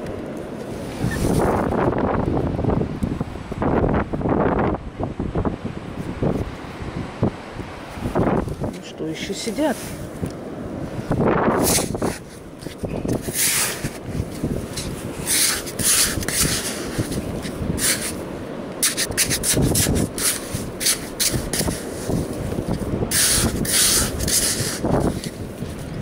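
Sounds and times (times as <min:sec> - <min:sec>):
wind rumbling on microphone: 0:00.0 - 0:26.0
trowel scraping damp sand: 0:11.5 - 0:18.2, 0:18.8 - 0:25.6.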